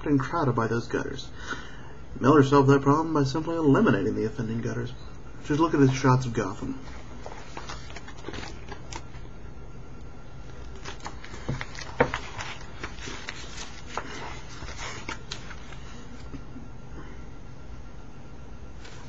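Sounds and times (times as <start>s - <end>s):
steady low hum: 0.0s - 19.0s
paper pages rustling: 6.8s - 9.2s, 10.4s - 16.4s, 18.8s - 19.0s.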